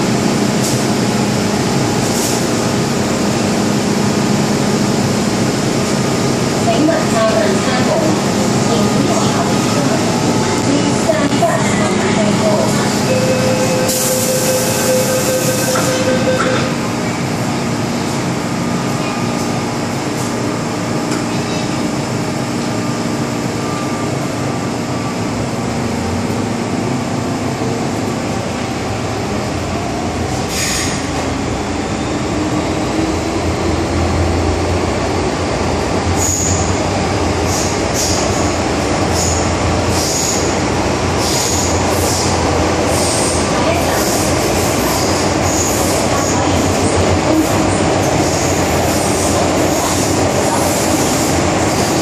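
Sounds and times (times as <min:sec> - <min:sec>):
train motors and wheels running: 0:00.0 - 0:52.0.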